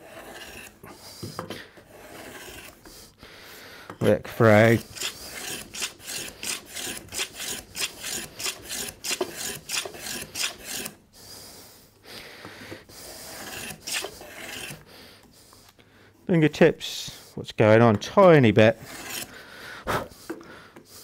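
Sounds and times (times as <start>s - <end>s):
plane rasping across wood: 0.0s - 3.1s, 4.4s - 11.0s, 12.9s - 14.8s, 18.7s - 20.4s.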